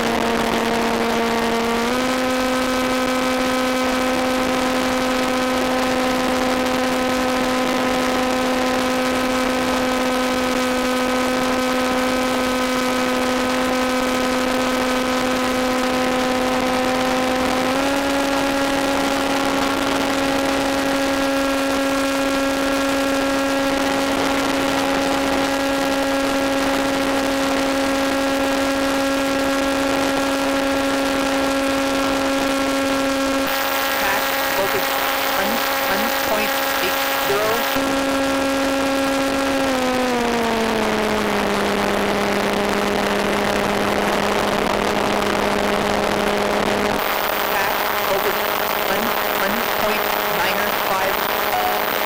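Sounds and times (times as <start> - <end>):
electric motor and propeller whine: 15.0 - 27.1.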